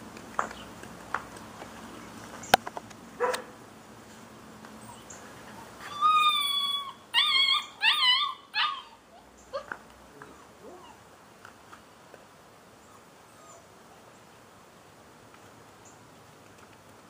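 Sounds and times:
puppy whining: 0:04.8 - 0:11.0, 0:12.8 - 0:13.8.

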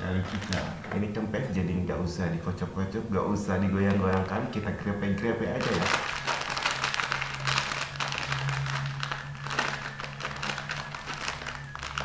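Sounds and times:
foil packet crinkling: 0:00.2 - 0:01.1, 0:03.8 - 0:12.0.

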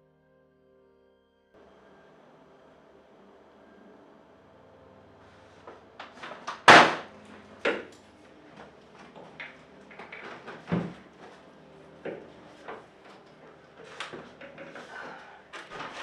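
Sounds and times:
sharp bang: 0:06.7 - 0:07.1
knocks and clunks: 0:09.0 - 0:11.2.

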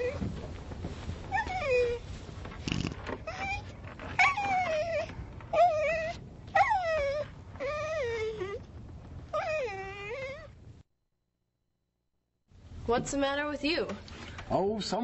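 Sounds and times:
dog-like whimpering whines: 0:01.3 - 0:02.0, 0:03.2 - 0:08.7, 0:09.3 - 0:10.6.

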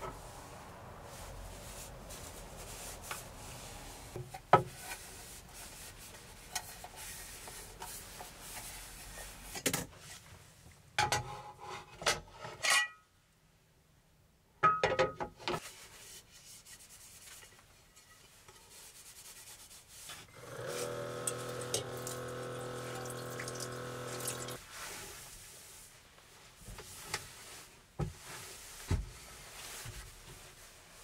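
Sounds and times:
paper towel rubbing on wood: 0:01.1 - 0:04.2.

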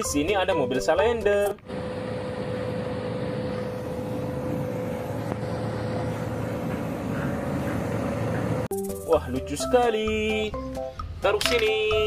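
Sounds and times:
road roller diesel engine running: 0:01.7 - 0:08.7.

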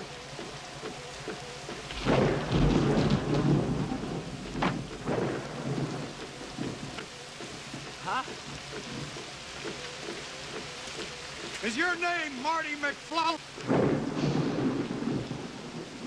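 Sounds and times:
heavy rain falling: 0:00.0 - 0:16.0
rumble of thunder: 0:01.8 - 0:09.2, 0:13.5 - 0:16.0.

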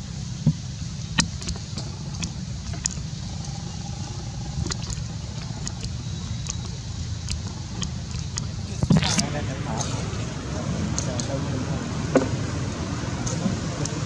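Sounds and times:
low background rumble: 0:00.0 - 0:14.0
sharp clicks and ticks: 0:00.4 - 0:09.3.

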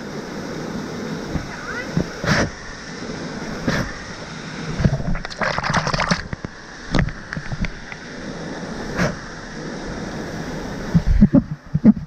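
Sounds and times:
water splashing: 0:01.1 - 0:09.5.

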